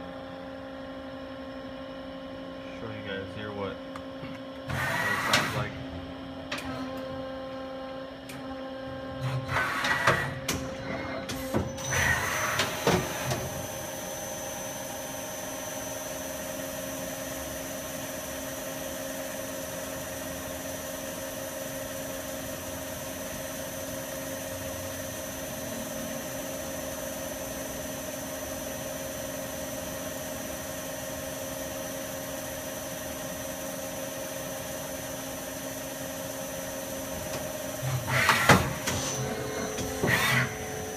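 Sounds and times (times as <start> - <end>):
spindle running with high whine: 11.8 - 40.9.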